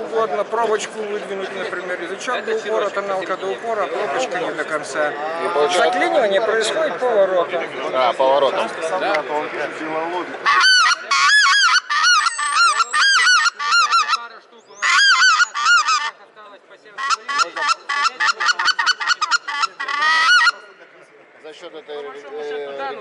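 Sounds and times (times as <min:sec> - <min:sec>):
goose call honking: 0:10.4 - 0:16.2, 0:17.0 - 0:20.8.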